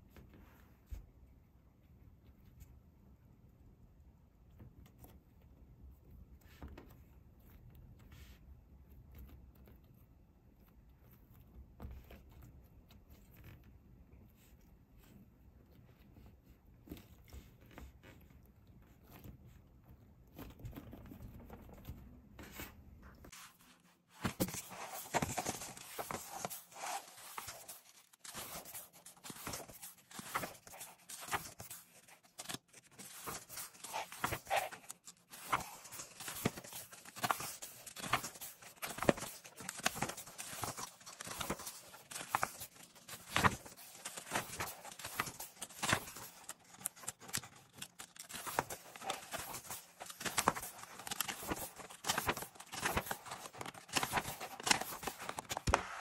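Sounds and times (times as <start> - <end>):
paper pages rustling and flicking: 20.2 - 56.0.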